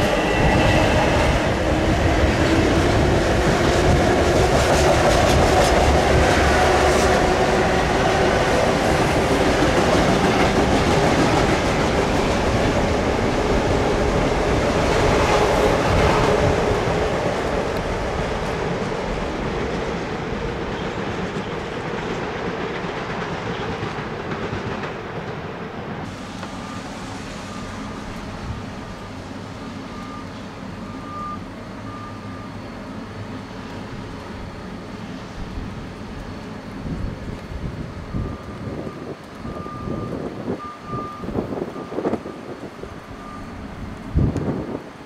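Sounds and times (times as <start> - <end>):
wind buffeting microphone: 0.0 - 22.0, 36.8 - 45.0
train rolling past on tracks: 0.0 - 45.0
reversing alarm beeps: 26.5 - 27.9, 29.8 - 33.2, 38.0 - 43.8.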